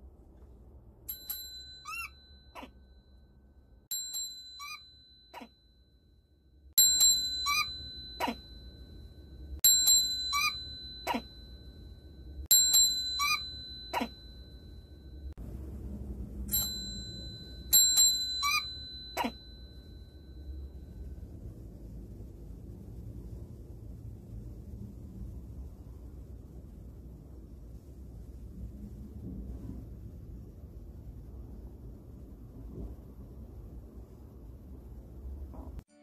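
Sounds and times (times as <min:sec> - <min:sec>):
mobile phone ringtone: 0:04.0 - 0:05.6, 0:06.8 - 0:11.7, 0:12.5 - 0:15.2, 0:16.5 - 0:20.3.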